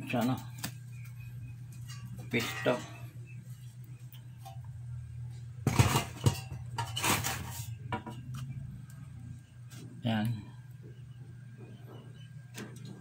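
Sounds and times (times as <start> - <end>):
low hum: 0.0 - 13.0
sheet metal clattering: 1.8 - 3.1, 5.7 - 8.2.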